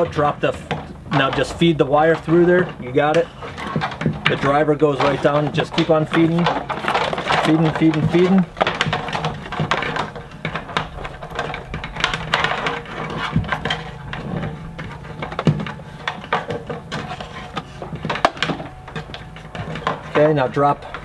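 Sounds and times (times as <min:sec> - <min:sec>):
rustling and rubbing: 0:00.0 - 0:21.0.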